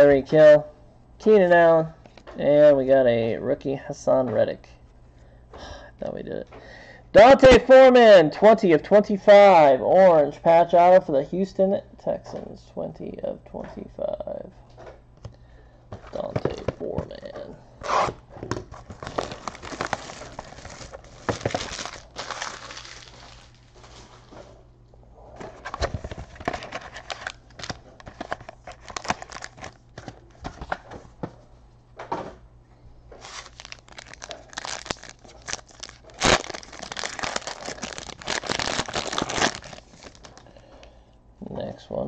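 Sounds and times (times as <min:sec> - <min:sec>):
foil packs crinkling and tearing: 0:18.8 - 0:24.3, 0:25.6 - 0:29.8, 0:33.2 - 0:40.4.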